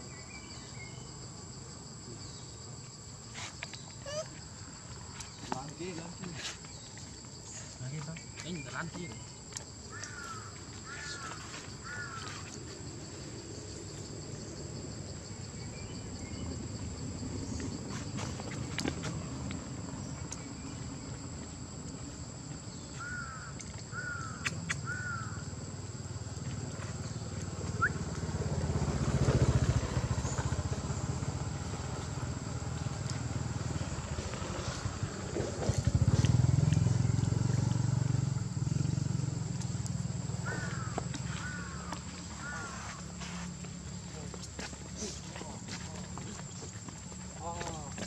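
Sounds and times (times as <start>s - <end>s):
low motor rumble: 25.0s - 48.0s.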